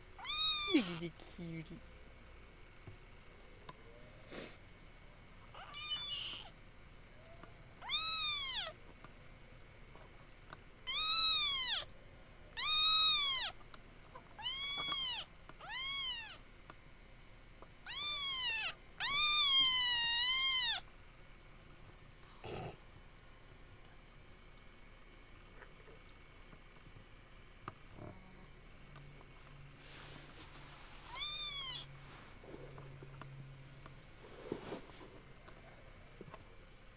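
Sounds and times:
kitten meowing: 0.2 - 1.0, 5.5 - 6.5, 7.8 - 8.8, 10.9 - 11.9, 12.6 - 13.6, 14.4 - 16.4, 17.8 - 20.8, 31.1 - 31.9.

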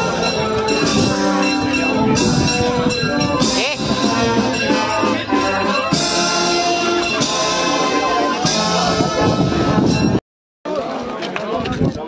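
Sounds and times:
band music with drums: 0.0 - 10.9.

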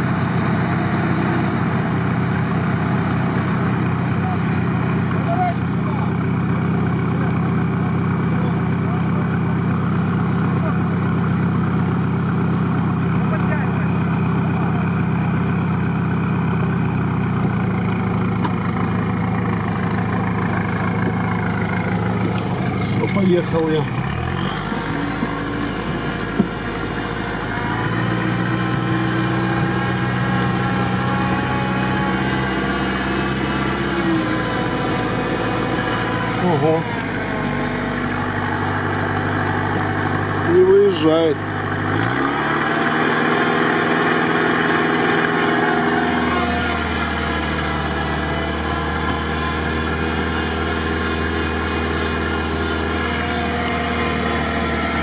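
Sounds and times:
vehicle engine idling: 0.0 - 55.0.

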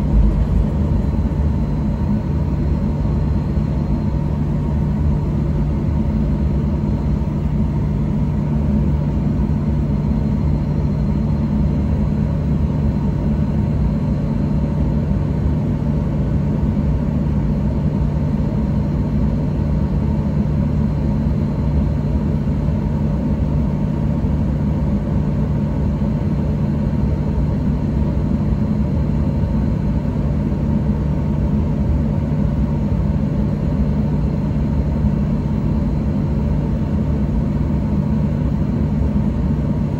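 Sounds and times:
faint high whine: 0.0 - 3.4
jet engines idling rumble: 0.0 - 14.4.

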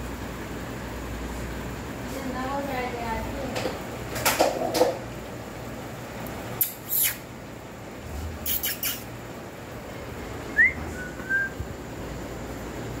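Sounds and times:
small bird chirping: 6.6 - 7.3, 8.4 - 9.2.

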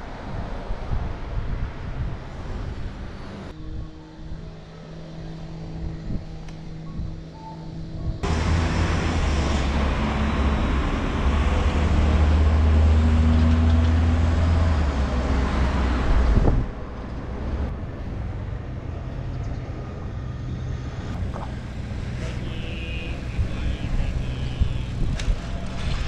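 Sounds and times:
quiet traffic ambience: 0.0 - 26.0
vehicle engine rumbling close by: 7.8 - 26.0.

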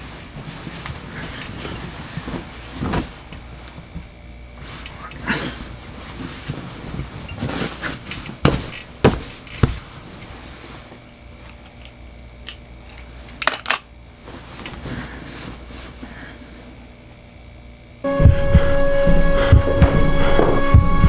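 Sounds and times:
bedding rustling: 0.0 - 21.0
faint steady hum: 0.0 - 21.0
sharp thumps: 8.4 - 9.8.

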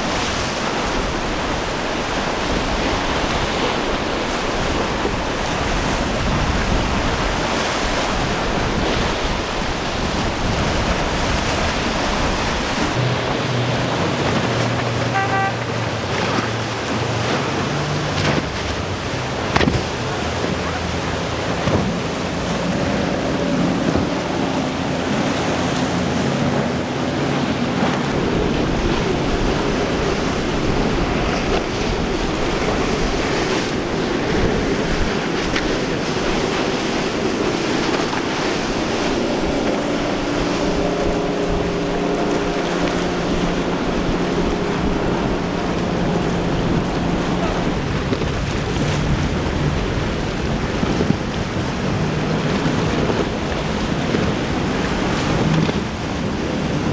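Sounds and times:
outboard engines running: 0.0 - 56.9
sea surf crashing: 0.0 - 56.9
brief tone: 15.1 - 16.7.

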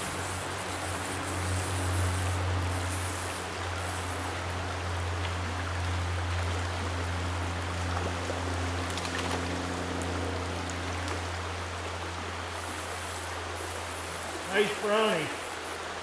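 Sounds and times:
stream rushing over rocks: 0.0 - 16.0.

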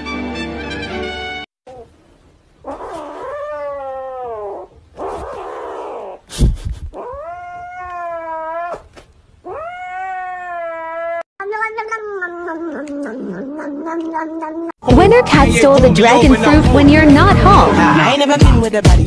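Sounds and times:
kitten crying: 7.0 - 14.8.

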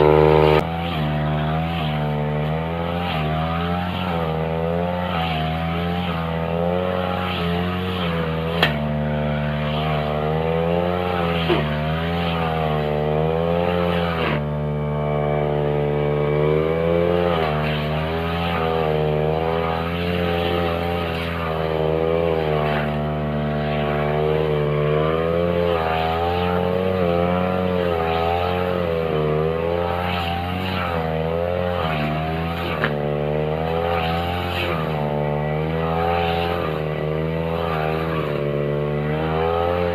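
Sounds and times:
brush cutter engine cutting grass: 0.0 - 39.9.

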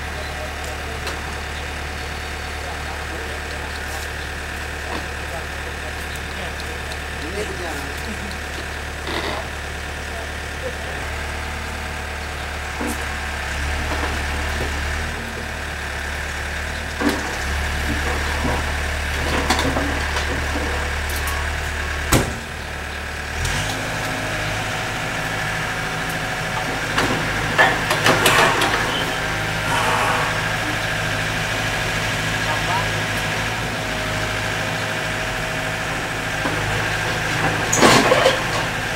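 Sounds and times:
excavator diesel engine running: 0.0 - 38.9
sharp knocks: 22.1 - 22.5.

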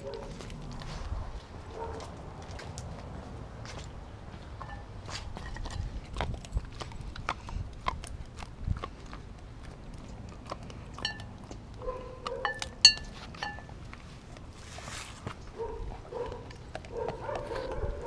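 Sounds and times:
dog chewing and crunching bone: 0.0 - 18.0
sharp clinks on glass bowl: 11.0 - 11.3, 12.4 - 13.7.

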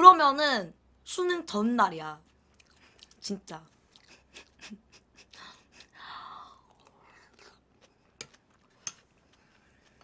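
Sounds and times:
soft chewing: 2.2 - 10.0.

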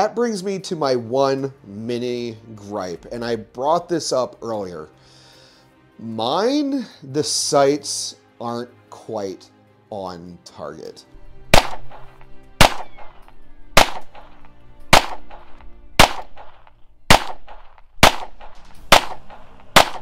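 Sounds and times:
background music: 0.0 - 20.0
pistol shots: 11.5 - 20.0.

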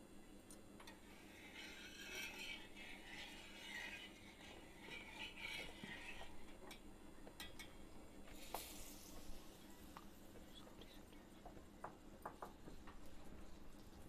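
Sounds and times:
steel spatula scraping hot pan: 1.0 - 6.8.

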